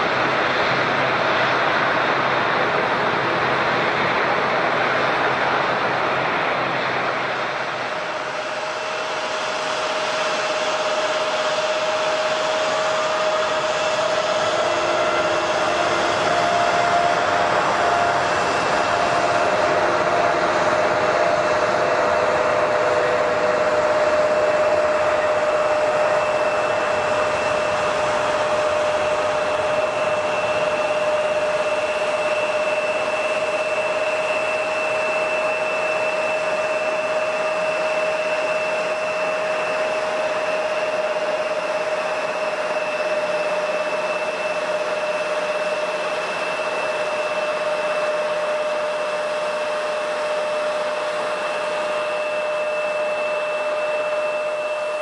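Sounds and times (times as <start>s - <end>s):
jet engines whining: 0.0s - 55.0s.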